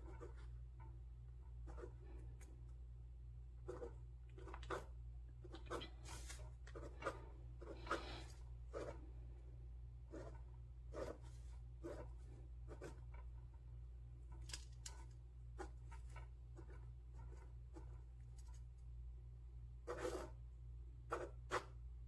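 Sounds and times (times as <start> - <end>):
ballpoint pen scratching paper: 0.0 - 0.9, 1.5 - 2.5, 3.6 - 9.2, 10.0 - 13.6, 14.9 - 18.6, 19.8 - 20.4, 21.0 - 21.8
steady low hum: 0.0 - 22.0.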